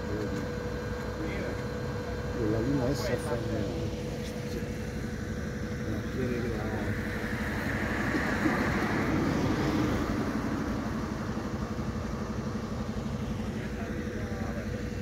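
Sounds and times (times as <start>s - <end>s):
engine idling: 0.0s - 15.0s
rush of noise: 5.8s - 12.0s.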